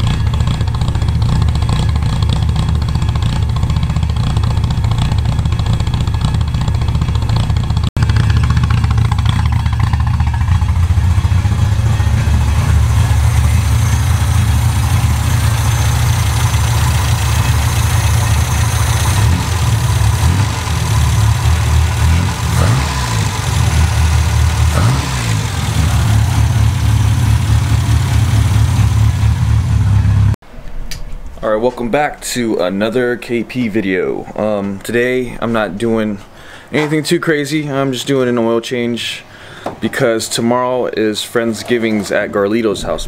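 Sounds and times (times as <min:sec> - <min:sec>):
car engine idling: 0:00.0 - 0:30.4.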